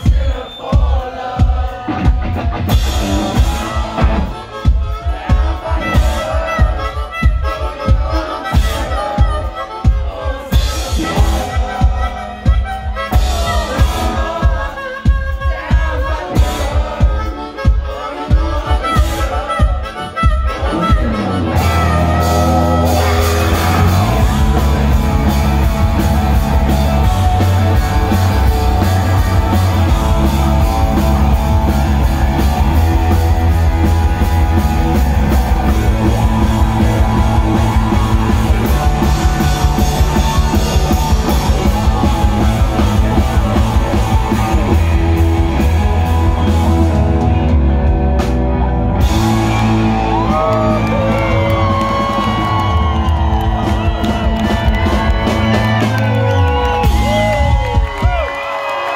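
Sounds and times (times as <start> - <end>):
person singing: 0.0 - 47.2
bass guitar: 0.0 - 58.5
drum kit beat: 0.0 - 58.5
electric guitar: 20.2 - 58.9.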